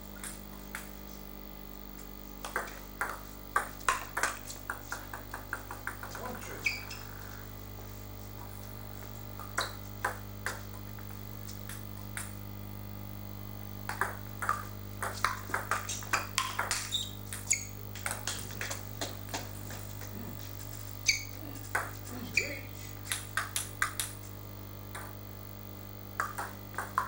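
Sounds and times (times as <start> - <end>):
table tennis ball hits and bounces: 2.4 - 6.9, 9.4 - 10.7, 11.7 - 12.4, 13.8 - 19.4, 21.0 - 24.2, 24.9 - 25.2, 26.2 - 27.0.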